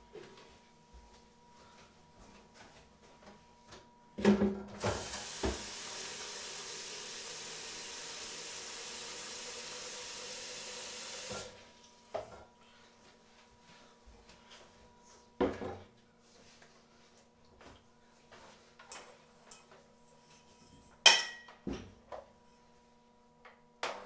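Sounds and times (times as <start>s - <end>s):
tap running into a jug: 4.8s - 11.6s.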